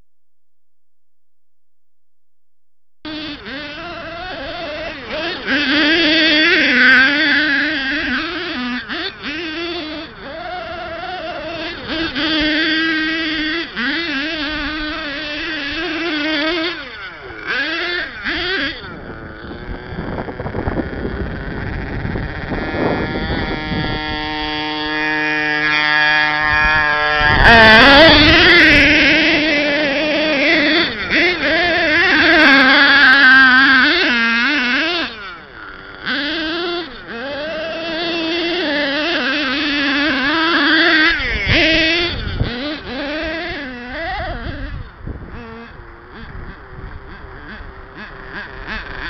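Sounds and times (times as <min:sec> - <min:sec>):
rc truck nitro engine revving: 0:03.0 - 0:49.0.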